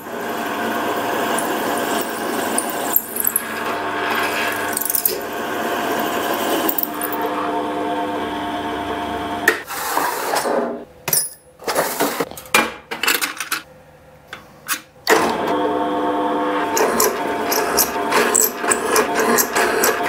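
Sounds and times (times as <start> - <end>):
pillar drill motor hum: 0.0 - 9.6, 15.1 - 20.0
drill bits rattling in metal drawer: 1.2 - 5.3, 6.3 - 7.3, 16.8 - 20.0.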